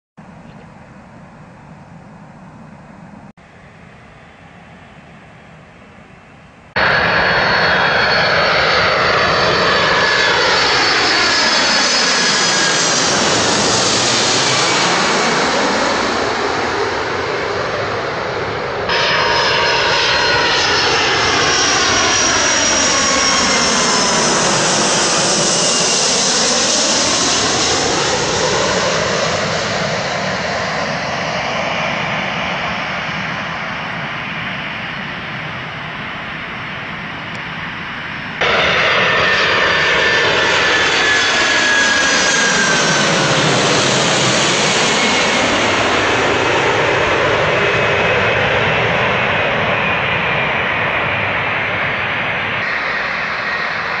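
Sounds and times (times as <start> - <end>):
jet airliner passing low overhead: 0.2 - 54.0.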